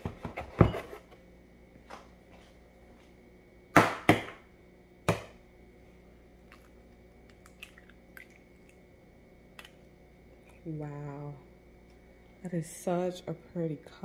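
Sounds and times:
eggshell crackling: 0:06.4 - 0:08.9.

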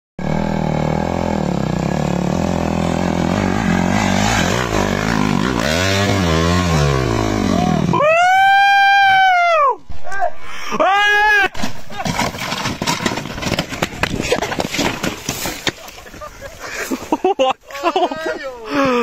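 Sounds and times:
dirt bike engine revving: 0:00.2 - 0:08.6.

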